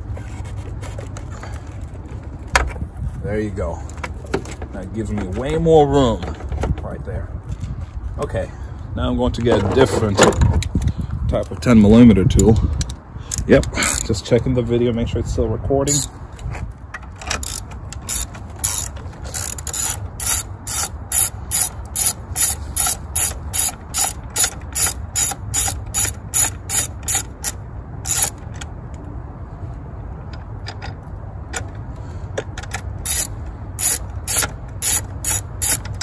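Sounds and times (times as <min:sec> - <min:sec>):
ratchet wrench clicking: 0:15.9 - 0:16.1, 0:17.3 - 0:28.5, 0:32.7 - 0:36.0.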